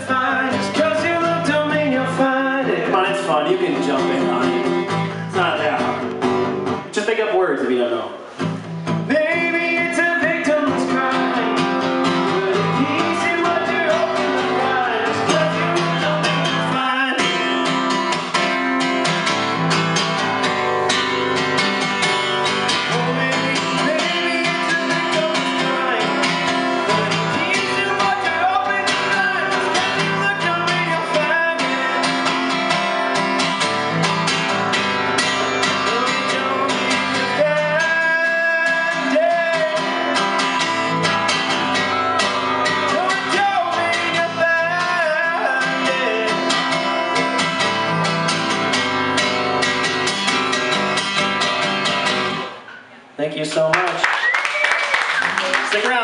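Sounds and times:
man singing into a microphone: 0.0 - 6.0, 9.0 - 17.6, 22.8 - 32.6, 35.4 - 40.6, 42.7 - 47.0
acoustic guitar strumming: 0.0 - 53.0.

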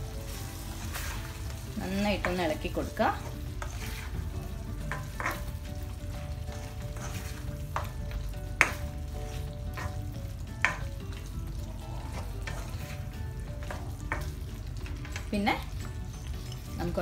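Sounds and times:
food sizzling in a wok: 0.0 - 17.0
spatula knocking and scraping pan: 2.2 - 4.2, 4.8 - 11.0, 12.1 - 15.3.

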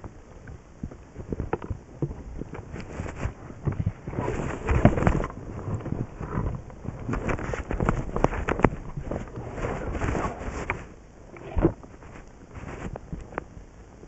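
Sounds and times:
jacket fabric rustling: 7.1 - 13.0.

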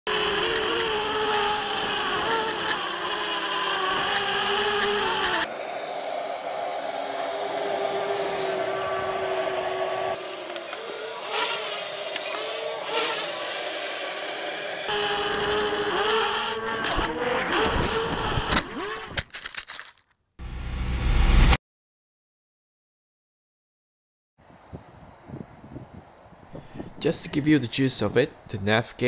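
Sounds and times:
drone motors whining: 0.1 - 19.2.

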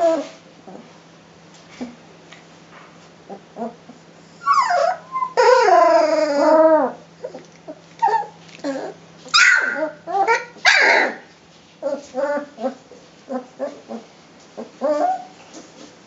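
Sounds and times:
puppies whining and yelping: 0.0 - 0.8, 3.3 - 15.7
puppy squeals: 3.6 - 15.5.

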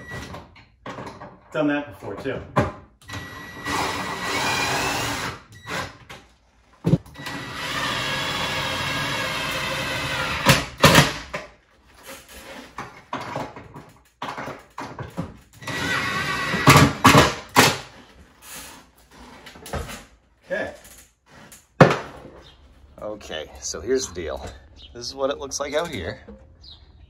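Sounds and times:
cordless drill driving bolts: 3.0 - 6.1, 7.1 - 11.1, 15.6 - 17.7.

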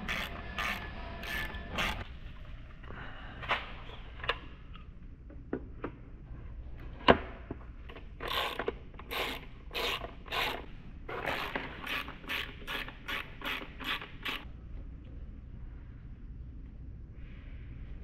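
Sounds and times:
ratchet wrench clicking: 0.0 - 2.0, 8.2 - 14.4.

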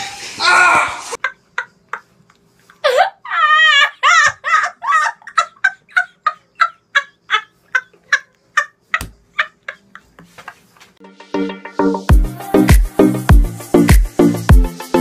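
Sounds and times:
boy laughing high-pitched: 2.8 - 10.2.

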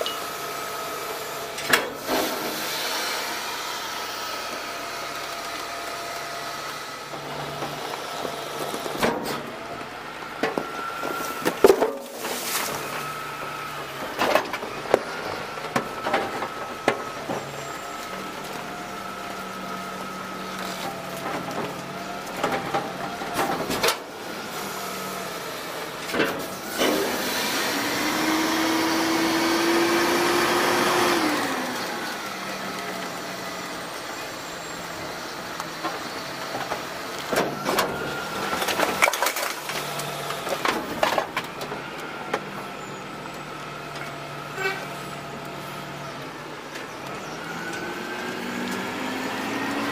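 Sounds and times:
garbage truck engine and hydraulics: 0.0 - 49.9
trash and metal clattering: 7.0 - 24.3, 25.9 - 27.2, 35.8 - 45.3.

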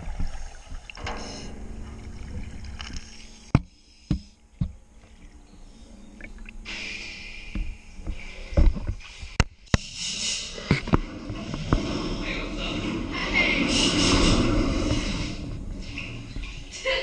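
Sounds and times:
water sloshing and splashing: 0.0 - 6.9, 10.4 - 17.0
loud low thumps: 1.0 - 4.9
sharp knocks: 1.1 - 4.8.

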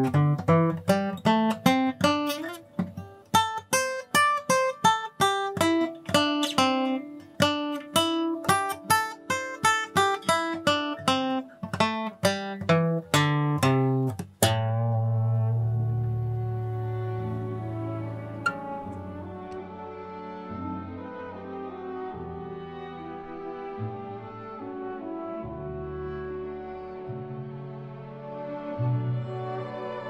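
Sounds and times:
acoustic guitar picking: 0.0 - 19.6.

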